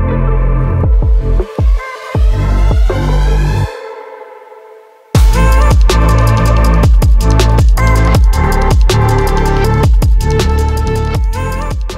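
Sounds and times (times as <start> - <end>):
electronic dance music: 5.2 - 11.9.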